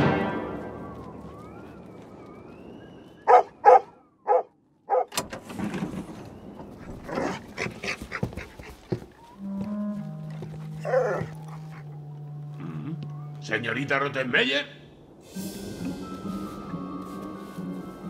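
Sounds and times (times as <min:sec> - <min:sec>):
large dog barking: 0:03.3 - 0:05.1, 0:10.8 - 0:11.8
knocks and shuffling: 0:04.9 - 0:13.4
low held music notes: 0:09.2 - 0:14.4.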